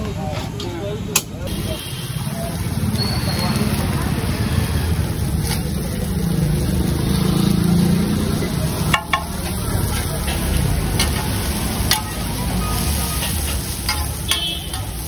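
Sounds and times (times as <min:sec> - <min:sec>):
metal spatula clinking on griddle: 0:08.9 - 0:15.0.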